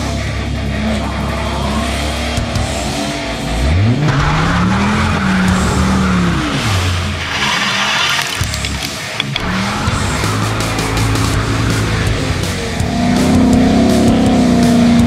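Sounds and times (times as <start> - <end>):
car engine revving: 0.0 - 15.0
tyres squealing: 4.9 - 10.9.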